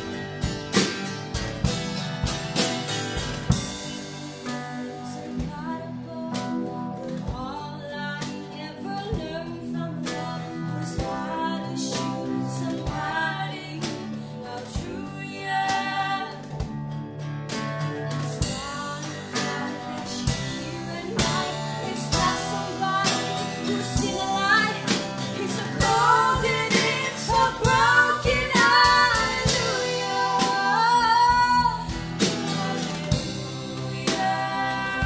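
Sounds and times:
drum kit beat: 0:00.0 - 0:05.7, 0:17.6 - 0:35.0
acoustic guitar: 0:00.0 - 0:35.0
keyboards: 0:00.0 - 0:35.0
women singing: 0:04.8 - 0:16.7, 0:18.4 - 0:35.0.

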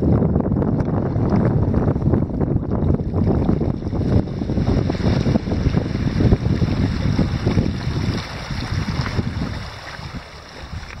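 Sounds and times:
wind buffeting microphone: 0:00.0 - 0:11.0
waves washing onto stony shore: 0:03.3 - 0:11.0.

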